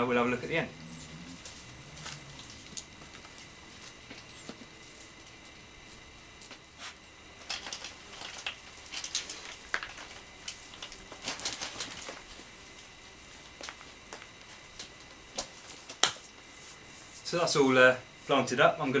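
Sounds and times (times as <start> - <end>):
hands rustling potting compost: 0.1 - 15.9.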